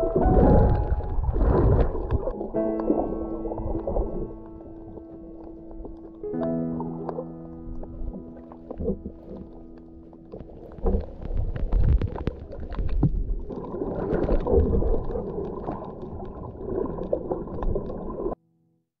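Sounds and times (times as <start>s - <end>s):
muffled underwater rumbling: 0.0s - 18.4s
small underwater clicks: 3.8s - 18.4s.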